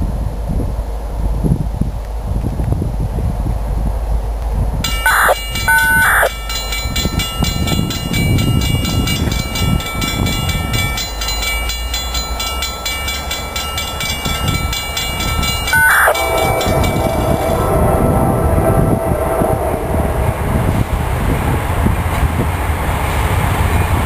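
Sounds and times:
wind rumble on microphone: 0:00.0 - 0:24.0
train horn blasts: 0:15.3 - 0:22.4.

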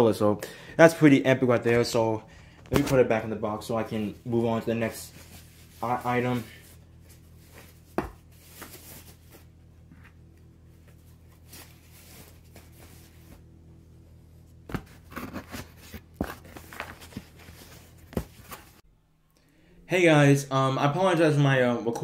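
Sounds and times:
steady low hum: 0:00.0 - 0:22.0
packaging rustling: 0:14.8 - 0:18.8.

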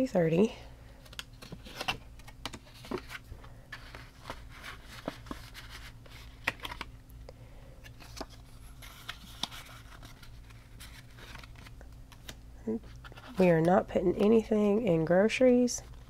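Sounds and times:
faint steady hum: 0:00.0 - 0:16.0
paper and plastic rustling: 0:01.0 - 0:06.9, 0:07.8 - 0:14.4.

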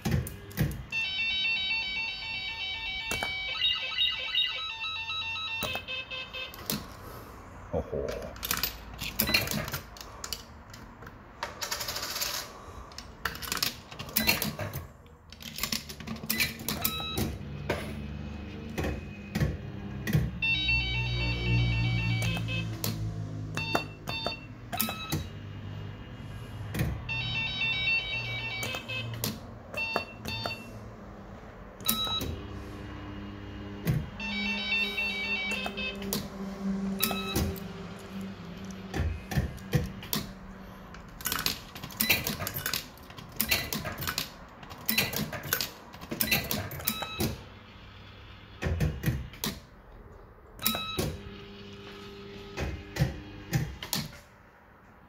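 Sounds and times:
electronic beeping tune: 0:27.1 - 0:29.1, 0:34.2 - 0:36.1, 0:36.9 - 0:37.8.

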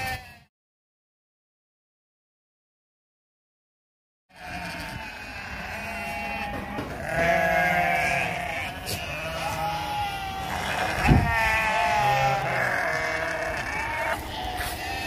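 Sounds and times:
goats bleating: 0:00.0 - 0:00.5, 0:04.3 - 0:15.0.

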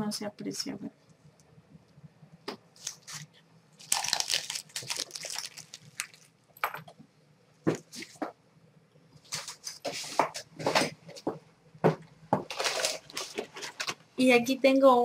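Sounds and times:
paper wrapping crinkling: 0:02.8 - 0:06.3, 0:12.5 - 0:14.0.

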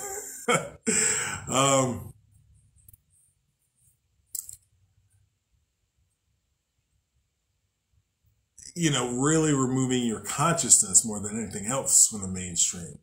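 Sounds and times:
man speaking into microphone: 0:00.9 - 0:02.1, 0:08.6 - 0:13.0.

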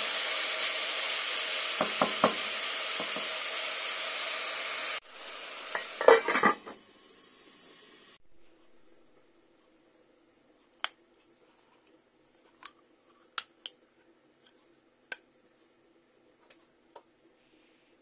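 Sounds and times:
faint steady hum: 0:05.2 - 0:18.0.

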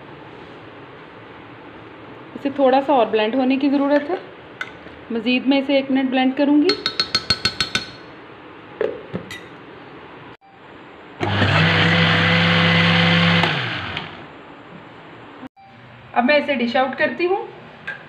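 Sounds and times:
blender motor humming: 0:11.2 - 0:14.3.

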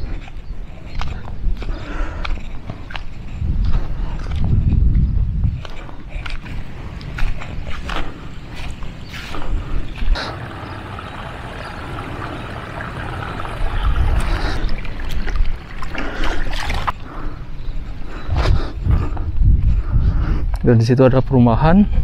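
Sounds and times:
wind rumbling on microphone: 0:00.0 - 0:22.0
water running through channel: 0:08.6 - 0:17.4.

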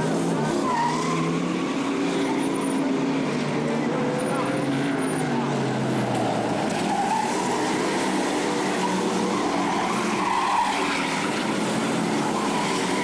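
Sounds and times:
stock car engines racing: 0:00.0 - 0:13.0
tyre squeal: 0:00.5 - 0:01.5, 0:06.8 - 0:13.0.

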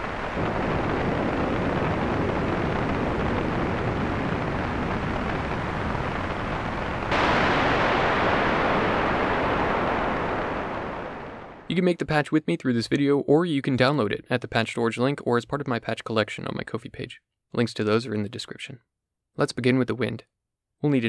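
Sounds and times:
synthesized wind and rain noise: 0:00.0 - 0:11.8.

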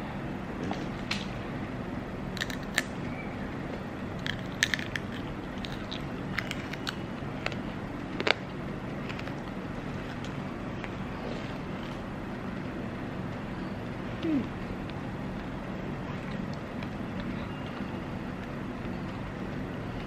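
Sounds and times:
steady low hum: 0:00.0 - 0:20.0
crunching of candied fruit: 0:02.3 - 0:03.0, 0:04.0 - 0:12.1.

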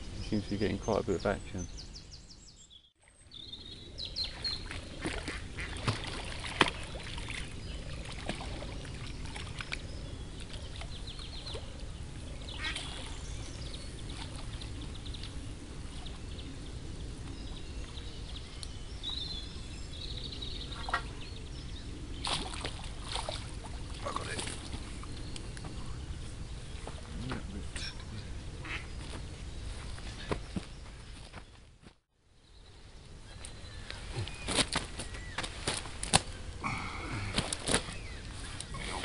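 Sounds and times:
waterbirds calling: 0:00.0 - 0:31.5, 0:32.4 - 0:39.0
outdoor background noise: 0:00.0 - 0:39.0
small birds chirping: 0:00.0 - 0:39.0
ducks quacking: 0:05.0 - 0:05.9, 0:12.5 - 0:13.1, 0:27.2 - 0:29.0.

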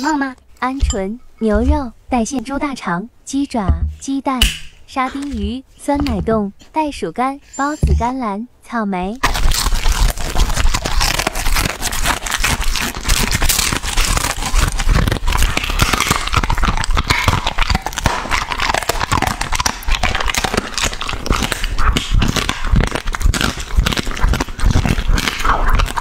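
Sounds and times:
dog chewing and crunching food: 0:09.2 - 0:26.0.

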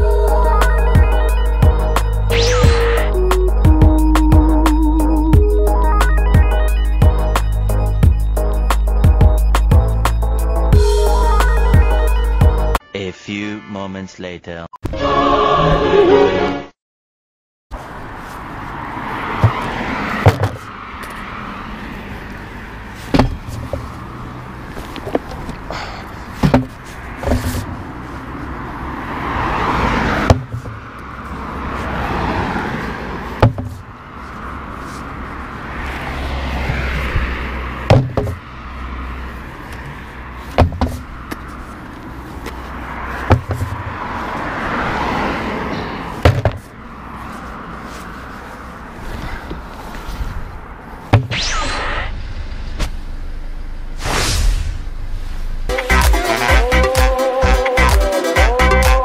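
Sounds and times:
slow vehicle running: 0:00.0 - 0:12.7, 0:17.8 - 0:55.7
music: 0:00.0 - 0:14.1, 0:55.7 - 0:59.0
plastic traffic cones knocking: 0:26.4 - 0:26.7, 0:37.9 - 0:38.4, 0:46.2 - 0:46.7.

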